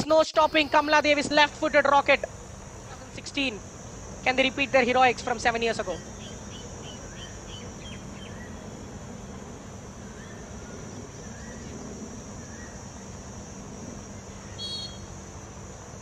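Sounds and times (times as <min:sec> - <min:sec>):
high-pitched insect drone: 0:00.0 - 0:16.0
bird chirps: 0:00.1 - 0:01.2, 0:05.9 - 0:08.6, 0:14.2 - 0:15.2.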